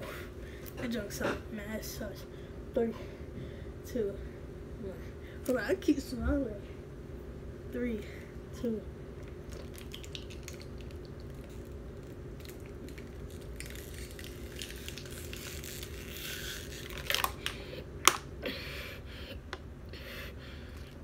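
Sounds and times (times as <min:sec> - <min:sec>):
plastic bottle crinkling: 0:09.5 - 0:18.2
plastic bottle sharp cracks: 0:16.9 - 0:18.3.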